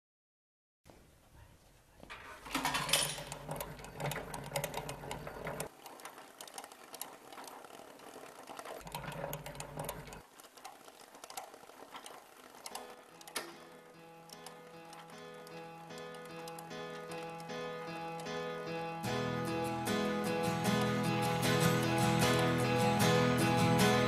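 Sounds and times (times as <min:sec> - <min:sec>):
film projector clatter: 0:02.4 - 0:18.4
low motor hum: 0:03.3 - 0:17.4.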